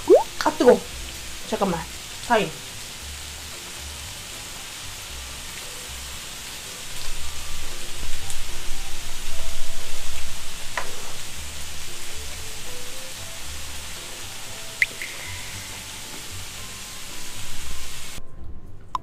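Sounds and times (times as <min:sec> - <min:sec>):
steak sizzling on a grill pan: 0:00.2 - 0:18.2.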